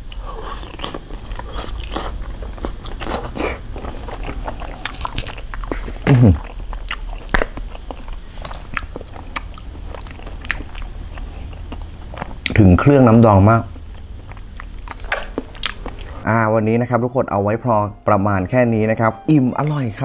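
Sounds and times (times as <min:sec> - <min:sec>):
person chewing wetly: 0:00.0 - 0:12.6, 0:13.7 - 0:16.2.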